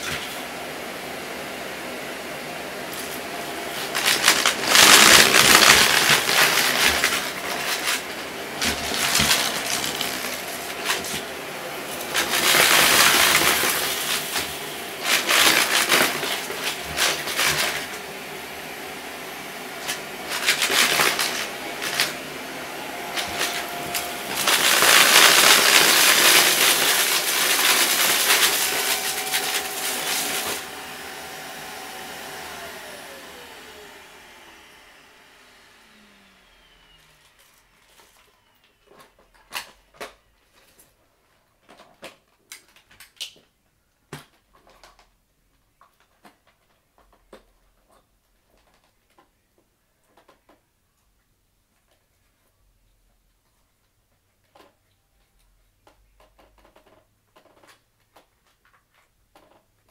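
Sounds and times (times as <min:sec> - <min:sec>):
upright vacuum running over carpet: 0:00.0 - 0:38.1
debris crunching and rattling: 0:03.8 - 0:11.2, 0:12.0 - 0:18.0, 0:19.8 - 0:22.2, 0:23.1 - 0:30.6.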